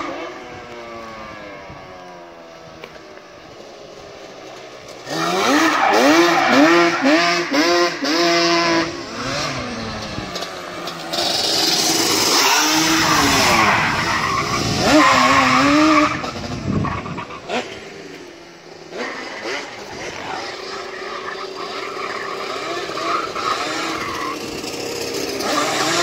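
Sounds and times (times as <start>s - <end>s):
two-stroke engine revving: 4.6s - 26.0s.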